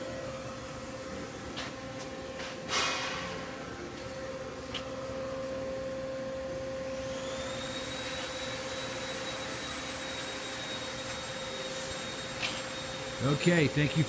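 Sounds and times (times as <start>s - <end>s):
electric machine hum: 3.3s - 14.0s
thin high whine: 4.1s - 14.0s.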